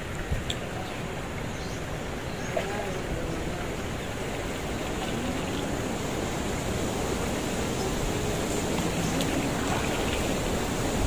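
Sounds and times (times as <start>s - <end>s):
faint distant voices: 0.5s - 4.3s.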